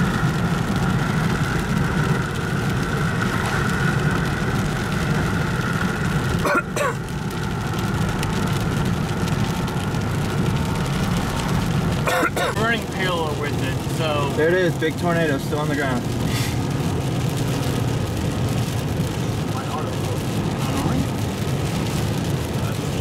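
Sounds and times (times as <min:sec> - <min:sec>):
car engine: 0:00.0 - 0:23.0.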